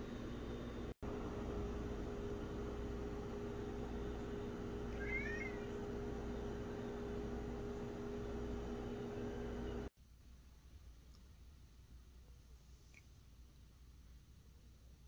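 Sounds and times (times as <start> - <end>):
steady background hum: 0.0 - 15.0
cat meowing: 4.9 - 5.7.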